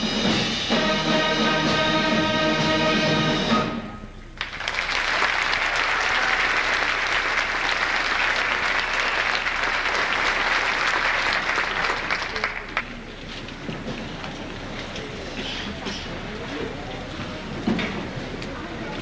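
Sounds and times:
audience applause: 0:04.4 - 0:13.3.

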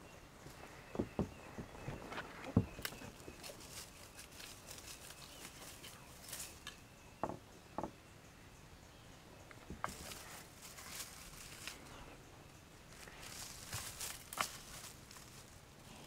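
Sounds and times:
light rustling and crackling: 0:00.4 - 0:06.8, 0:09.5 - 0:12.1, 0:12.9 - 0:16.0
soft knocks: 0:07.2 - 0:08.0.

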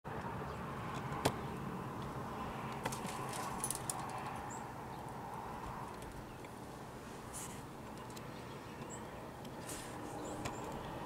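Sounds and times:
faint background hum: 0:00.1 - 0:11.0
sharp clicks and light rattles: 0:02.7 - 0:04.4.

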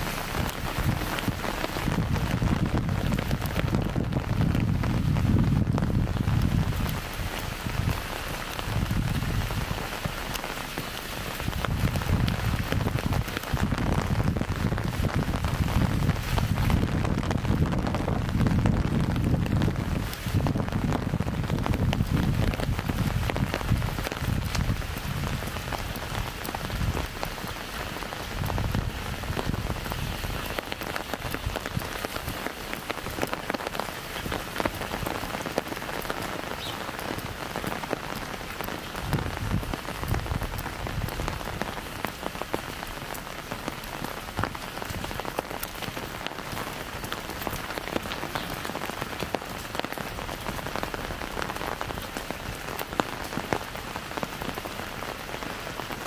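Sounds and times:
low rumbles: 0:00.0 - 0:33.5
rain tapping on umbrella and pavement: 0:00.0 - 0:56.0.

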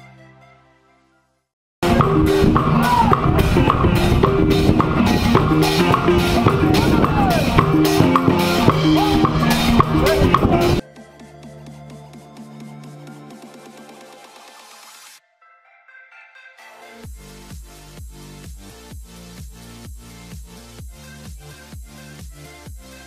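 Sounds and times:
marimba band with hand drums: 0:01.8 - 0:10.8.

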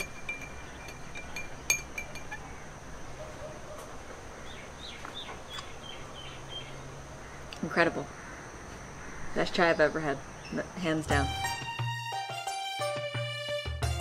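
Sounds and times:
spoon clinking in ceramic cup: 0:00.0 - 0:02.4.

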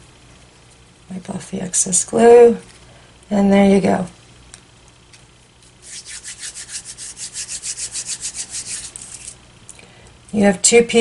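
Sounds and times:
hands rubbing: 0:05.8 - 0:09.4.

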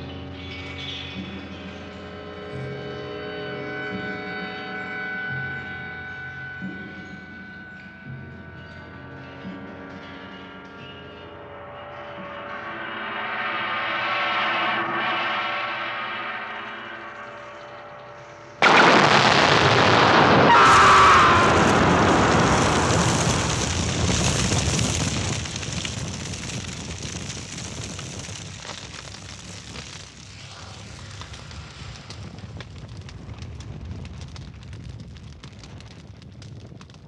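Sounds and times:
fire crackling: 0:15.6 - 0:37.0
loud explosion: 0:18.6 - 0:37.0.

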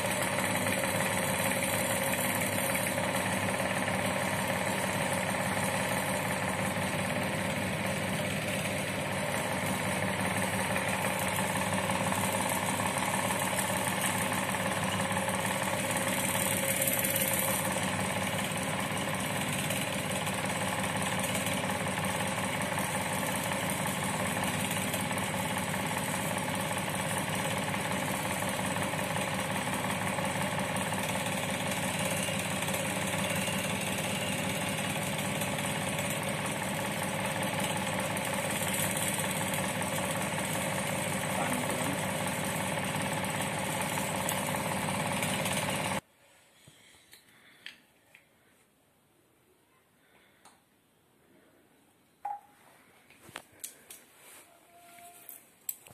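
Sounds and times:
motor running steadily: 0:00.0 - 0:46.0.

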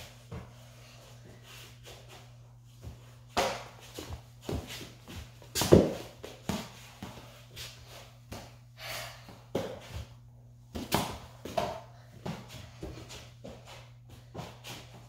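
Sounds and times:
ball bouncing on floor: 0:05.6 - 0:07.2, 0:10.7 - 0:13.6.

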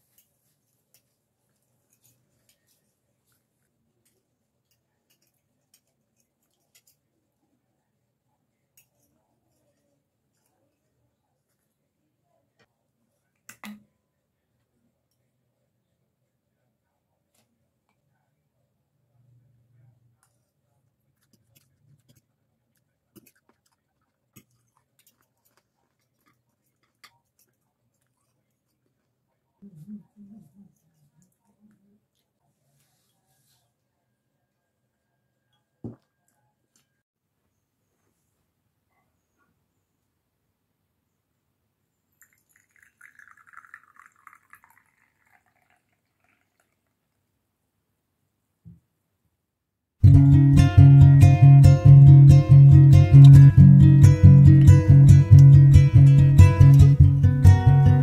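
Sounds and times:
tea pouring into porcelain cup: 0:42.2 - 0:47.2.

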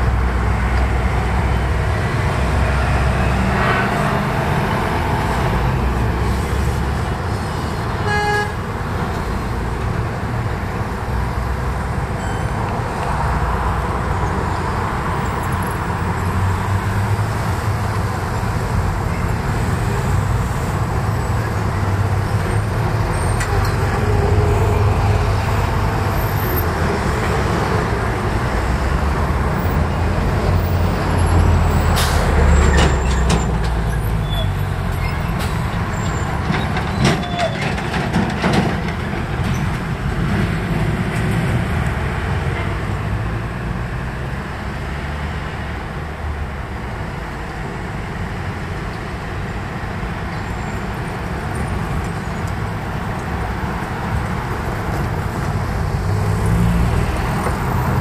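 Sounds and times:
traffic rumble: 0:00.0 - 0:58.0
car horn toot: 0:08.0 - 0:08.6.

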